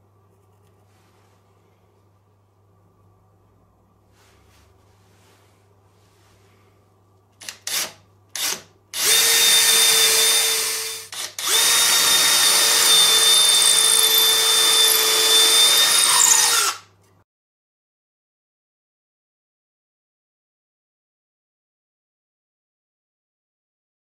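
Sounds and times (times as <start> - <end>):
cordless drill boring into wood: 7.4 - 16.9.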